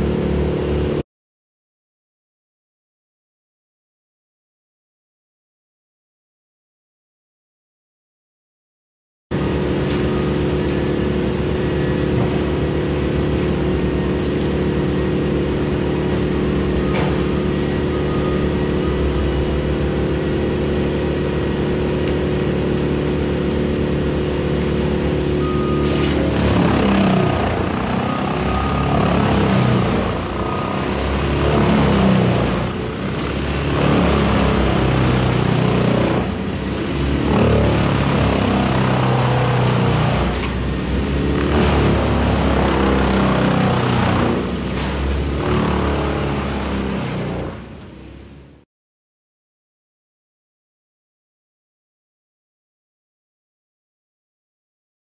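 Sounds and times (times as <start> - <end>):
uneven engine rumble: 0.0 - 1.0, 9.4 - 48.6.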